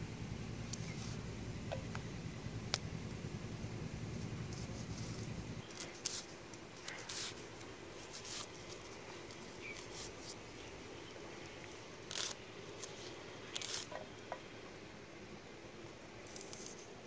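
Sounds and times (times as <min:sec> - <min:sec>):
low rumble: 0:00.0 - 0:05.6
onion skin rustling and scraping: 0:00.7 - 0:01.2, 0:04.1 - 0:14.1, 0:16.2 - 0:17.0.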